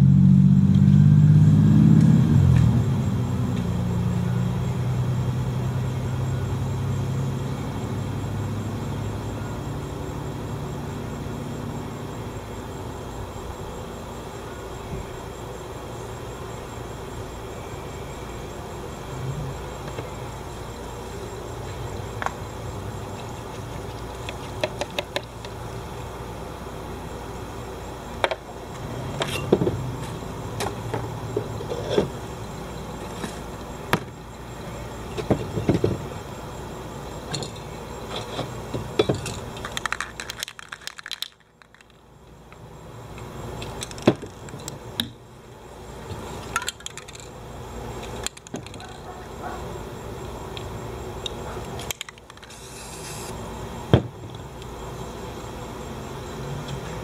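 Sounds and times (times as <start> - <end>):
spray cans clinking: 39.0 - 42.0.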